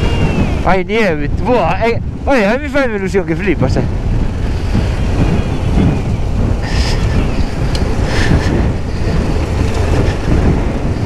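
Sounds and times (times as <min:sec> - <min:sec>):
wind buffeting microphone: 0:00.0 - 0:11.0
motorcycle engine running: 0:03.8 - 0:11.0.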